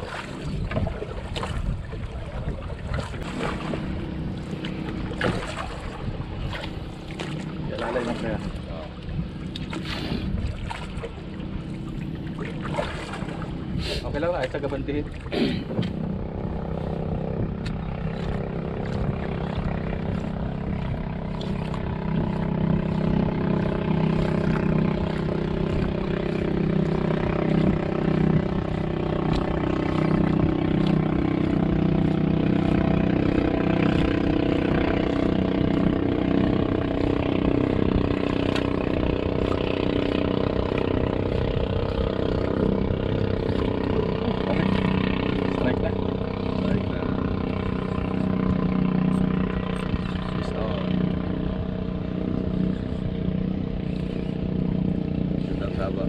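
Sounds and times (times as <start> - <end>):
small boat engine idling: 0.0 - 56.0.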